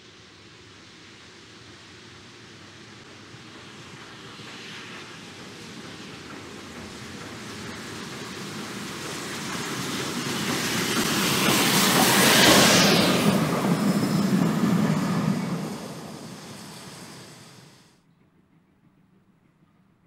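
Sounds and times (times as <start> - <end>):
steam train passing: 0.0 - 19.8.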